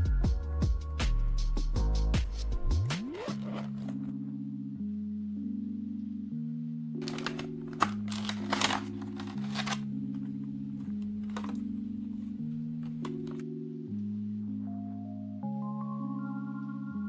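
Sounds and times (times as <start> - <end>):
slow held chords music: 0.0 - 17.0
plastic packaging crinkling: 7.0 - 11.8, 12.8 - 13.4.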